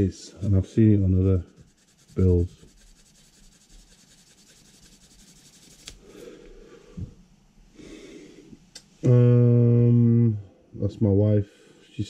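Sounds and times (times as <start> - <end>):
sandpaper on plastic: 1.2 - 6.0.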